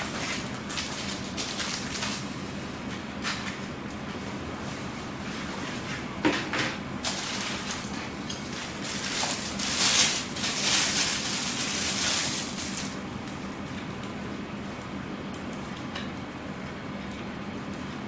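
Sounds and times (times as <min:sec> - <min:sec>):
plastic bag crinkling: 0:00.0 - 0:02.2, 0:07.0 - 0:13.4.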